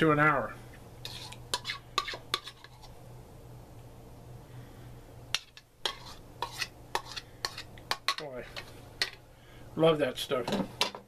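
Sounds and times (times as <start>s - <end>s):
low steady hum: 0.0s - 11.0s
spoon scraping a bowl: 1.0s - 3.0s, 5.4s - 9.2s.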